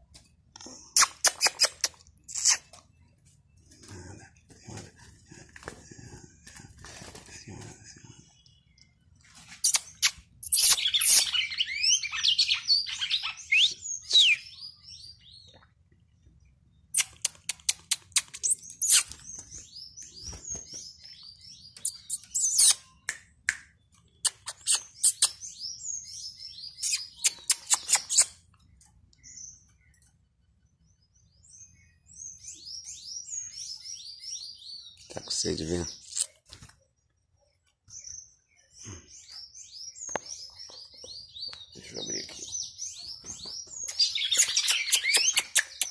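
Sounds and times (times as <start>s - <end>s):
sharp bird clicks: 0.6s - 2.8s, 9.6s - 11.6s, 16.9s - 19.5s, 21.8s - 25.4s, 26.8s - 29.2s, 43.8s - 45.9s.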